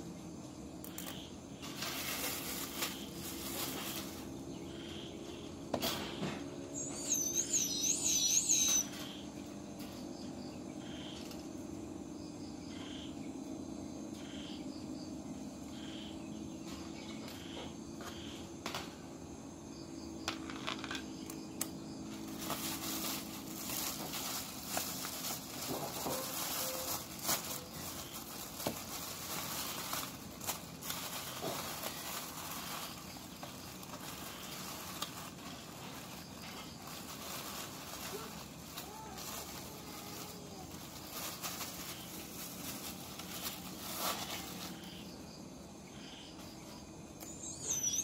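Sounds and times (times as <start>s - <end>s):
plastic bag rustling: 1.6s - 4.6s, 22.0s - 45.1s
faint regular chirps: 2.3s - 9.5s, 44.4s - 48.0s.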